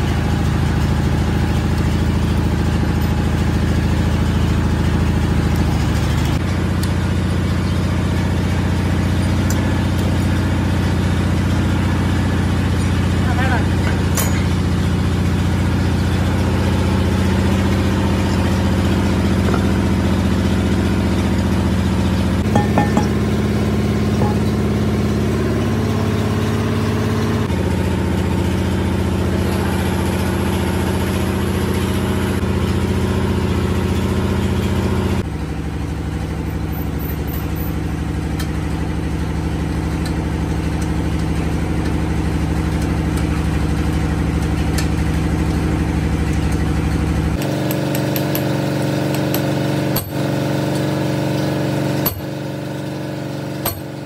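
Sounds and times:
machine drone: 0:00.0 - 0:36.2
hammer tapping on metal: 0:22.4 - 0:23.4, 0:24.2 - 0:24.6, 0:47.4 - 0:48.5, 0:53.6 - 0:54.0.

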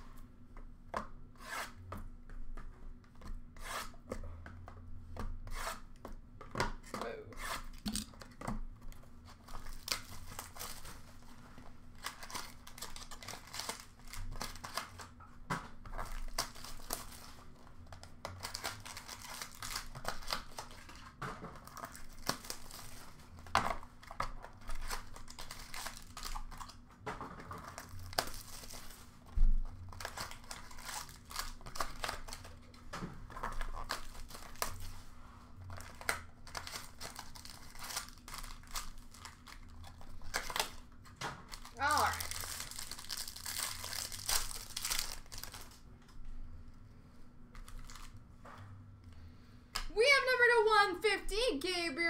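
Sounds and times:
foil wrappers tearing and crinkling: 0:09.3 - 0:11.3, 0:11.9 - 0:15.1, 0:15.9 - 0:26.8, 0:27.6 - 0:32.7, 0:33.3 - 0:35.0, 0:35.7 - 0:45.8, 0:47.7 - 0:48.1.

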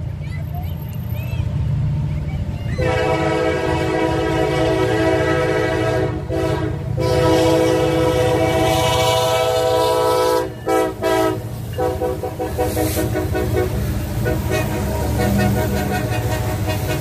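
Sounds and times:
wheels clattering on rails: 0:00.0 - 0:04.0, 0:08.0 - 0:17.0
diesel engines rumbling: 0:00.0 - 0:17.0
locomotive air horn: 0:02.8 - 0:17.0.

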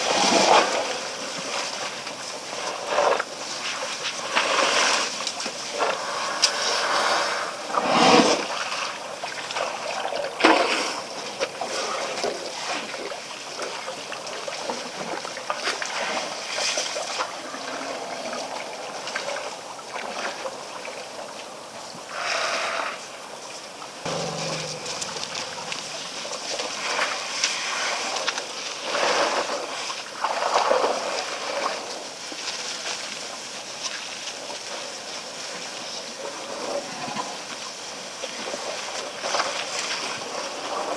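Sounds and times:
louder bursts of noise: 0:24.1 - 0:26.7.

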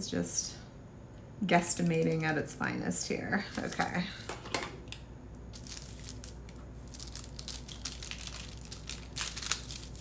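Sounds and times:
paper crinkling and rustling: 0:05.5 - 0:10.0.

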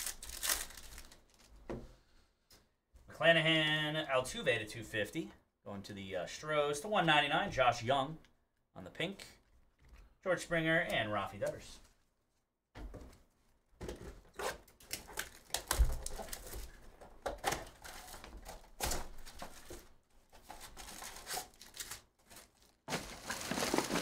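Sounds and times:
plastic shrink wrap crinkling: 0:00.0 - 0:01.6, 0:14.8 - 0:16.9, 0:17.7 - 0:24.0.

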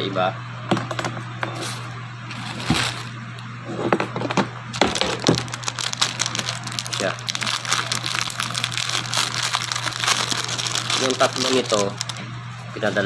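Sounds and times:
plastic crinkling and clicking: 0:04.8 - 0:12.2.

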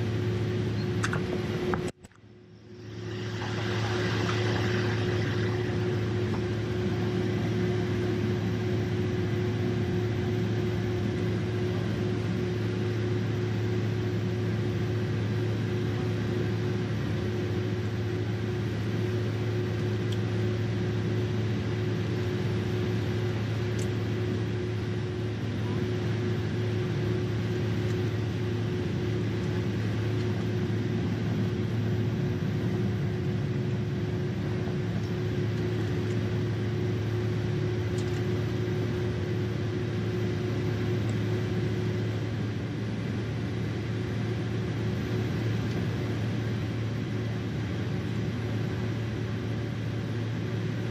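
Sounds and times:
airplane cabin engine hum: 0:00.0 - 0:50.9
steady held tone: 0:02.2 - 0:08.9.

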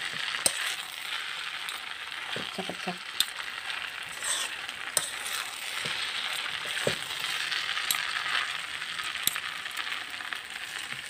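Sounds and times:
fork scraping a metal pan: 0:00.2 - 0:01.0, 0:03.9 - 0:08.0.

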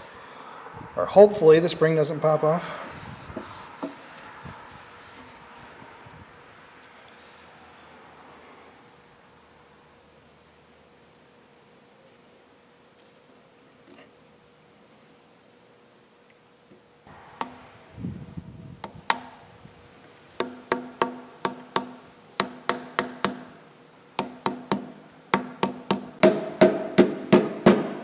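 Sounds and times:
hammer tapping metal: 0:20.4 - 0:23.6, 0:24.2 - 0:28.0.

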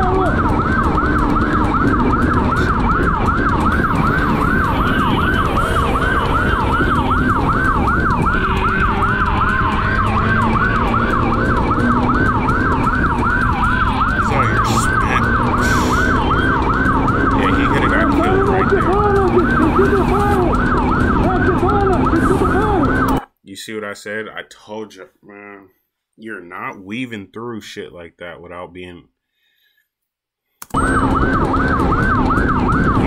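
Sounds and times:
motorcycle engine rumble: 0:00.0 - 0:23.2
police siren yelping: 0:00.0 - 0:23.2, 0:30.7 - 0:33.0.

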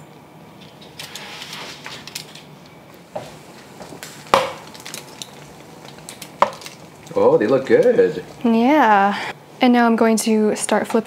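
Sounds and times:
foil rustling: 0:03.3 - 0:08.5.

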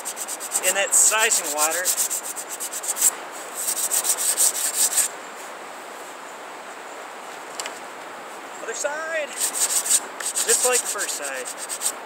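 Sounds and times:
sandpaper scraping wood: 0:00.0 - 0:05.1, 0:09.3 - 0:12.0.

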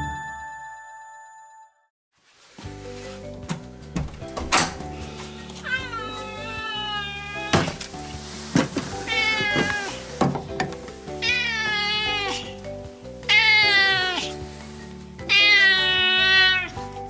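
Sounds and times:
cat meowing: 0:05.3 - 0:07.8, 0:09.0 - 0:10.0, 0:11.2 - 0:12.5, 0:13.3 - 0:14.3, 0:15.3 - 0:16.8.

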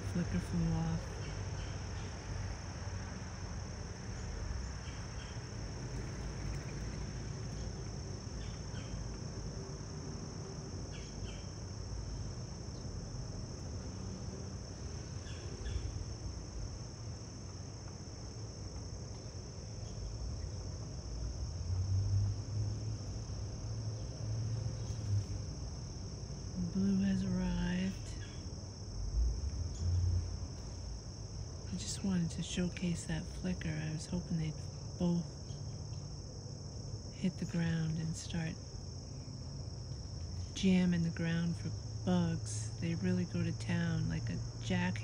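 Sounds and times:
high-pitched insect chorus: 0:00.0 - 0:45.0.

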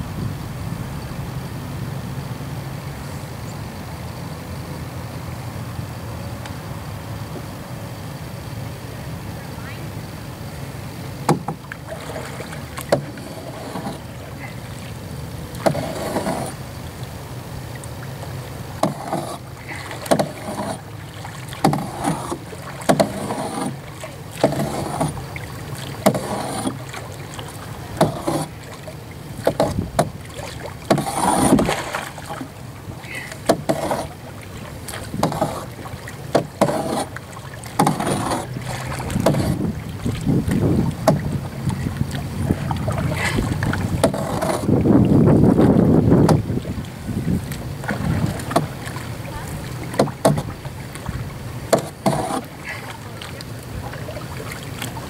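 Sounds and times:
paddle splashing and dripping: 0:09.4 - 0:55.0
paddle knocking on canoe: 0:11.2 - 0:17.0, 0:17.6 - 0:55.0.

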